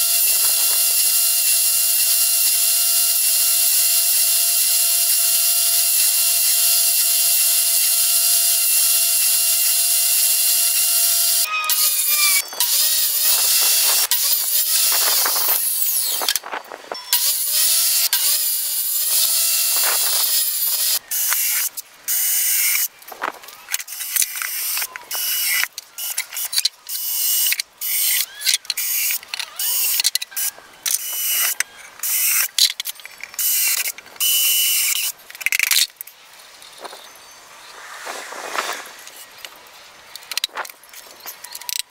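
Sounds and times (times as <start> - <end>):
cordless drill bursts: 0.0 - 16.3, 17.1 - 22.9, 26.9 - 32.5, 33.4 - 35.1
table saw cutting wood: 0.0 - 16.4, 17.1 - 22.8.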